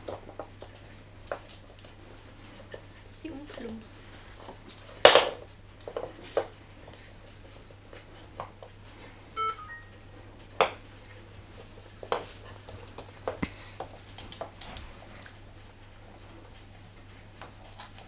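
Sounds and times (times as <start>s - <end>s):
short beeping tone: 9.4s - 10.0s.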